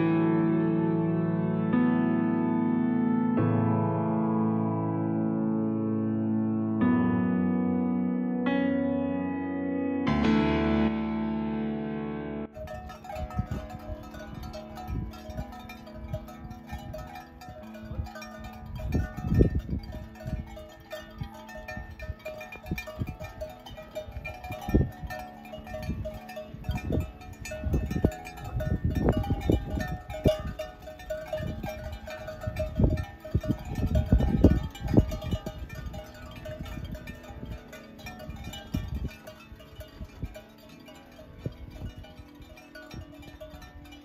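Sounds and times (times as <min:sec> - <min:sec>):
soft chime-like music: 0:12.5 - 0:44.0
goat bells clanking: 0:12.6 - 0:44.0.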